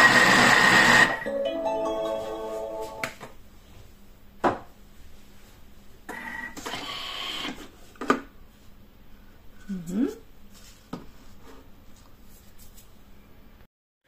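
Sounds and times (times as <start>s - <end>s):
kitchen machine whirring: 0.0s - 1.3s.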